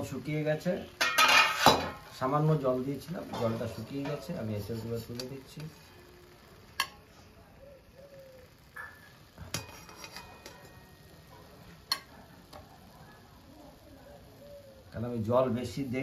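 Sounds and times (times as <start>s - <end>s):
metal spoon scraping metal pan: 1.0s - 2.0s, 9.5s - 11.0s.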